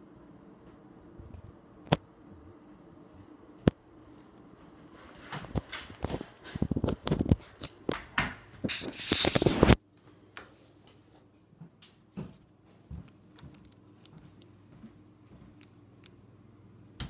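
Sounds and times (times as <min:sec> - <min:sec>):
loud scraping noise: 0:08.7 - 0:09.8.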